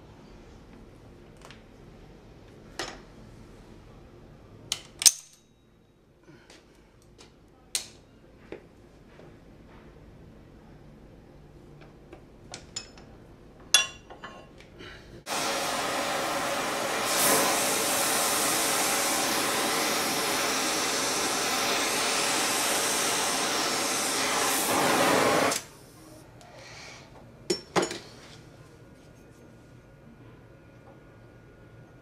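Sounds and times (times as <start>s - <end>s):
gas torch flame hissing: 15.3s - 25.8s.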